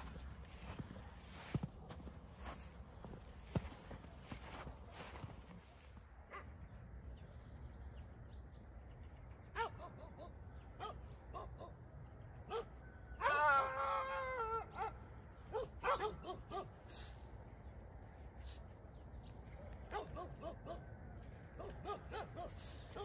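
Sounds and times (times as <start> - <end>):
dogs barking: 9.5 - 13.6, 14.2 - 17.1, 19.6 - 23.0.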